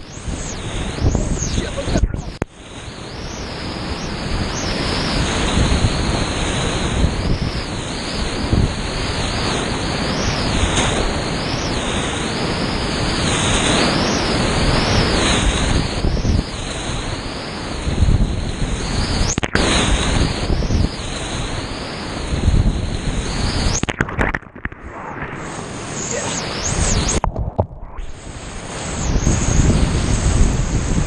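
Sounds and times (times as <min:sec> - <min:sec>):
waves splashing over microphone: 0:00.0 - 0:31.0
muffled underwater sound: 0:01.0 - 0:02.5.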